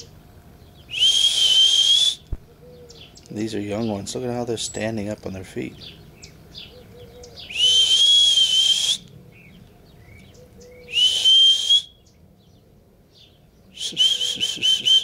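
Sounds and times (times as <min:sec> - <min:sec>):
person whistling: 0:00.9 - 0:02.2, 0:07.5 - 0:09.0, 0:10.9 - 0:12.0, 0:13.8 - 0:15.0.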